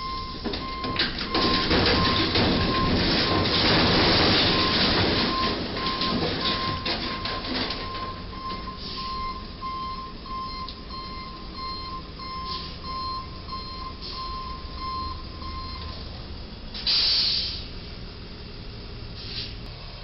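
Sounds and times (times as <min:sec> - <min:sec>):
truck reversing beeper: 0:00.0 - 0:17.6
loud short hiss: 0:16.8 - 0:17.7, 0:19.2 - 0:19.6.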